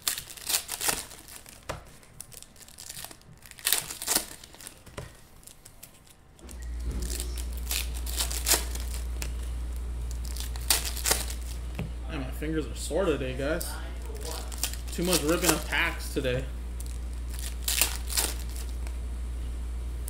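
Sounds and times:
foil packs tearing and crinkling: 0.0s - 9.5s, 10.1s - 11.7s, 13.5s - 16.2s, 16.8s - 18.9s
steady low hum: 0.0s - 20.0s.

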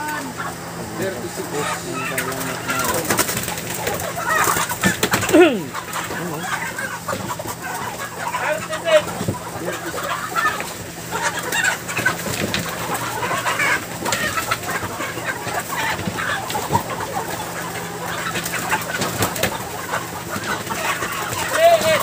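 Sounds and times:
steady low hum: 0.0s - 21.4s
chickens clucking and squawking: 0.0s - 22.0s.

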